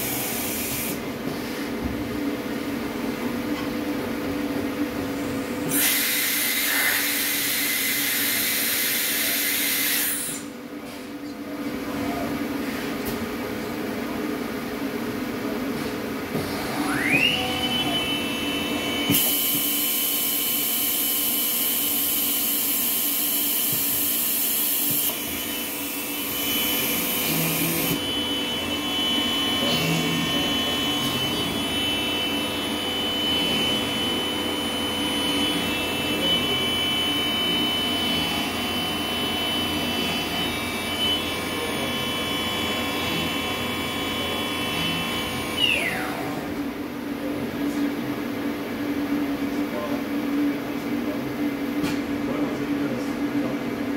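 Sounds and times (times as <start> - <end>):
router spindle high whine: 5.6 - 10.5, 16.4 - 47.8
machine hum: 13.4 - 53.9.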